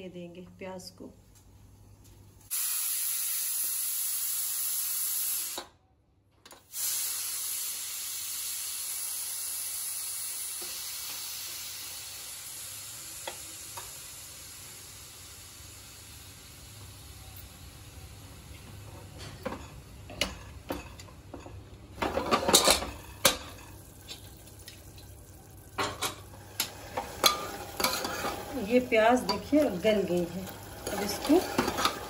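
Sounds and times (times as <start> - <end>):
pressure cooker steam hissing: 2.5 - 5.7, 6.7 - 18.4, 26.4 - 32.0.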